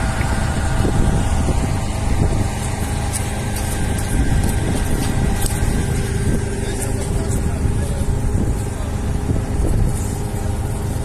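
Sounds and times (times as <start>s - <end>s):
engine running steadily: 0.0s - 11.0s.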